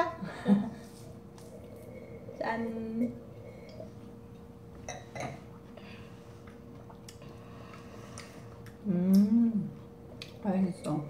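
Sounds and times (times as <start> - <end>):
person humming mmm: 8.7 - 9.9.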